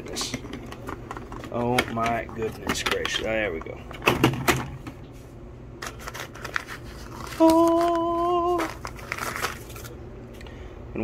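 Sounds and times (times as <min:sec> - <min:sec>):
paper wrapping crinkling: 0:05.8 - 0:10.0
man humming a note: 0:07.4 - 0:08.7.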